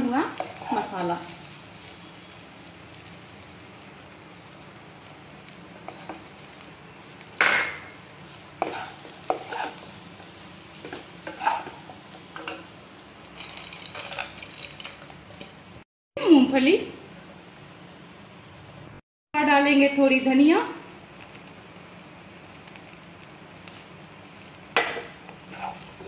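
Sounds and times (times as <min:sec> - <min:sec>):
low steady sizzle: 0:00.0 - 0:26.0
wooden spatula scraping pan: 0:08.6 - 0:09.9, 0:10.8 - 0:12.6, 0:13.4 - 0:15.5, 0:25.4 - 0:26.0.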